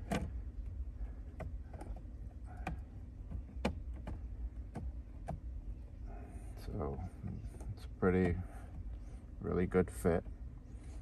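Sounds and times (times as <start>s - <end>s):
light clicks and taps on plastic trim: 0.0s - 5.5s
low steady rumble: 0.0s - 11.0s.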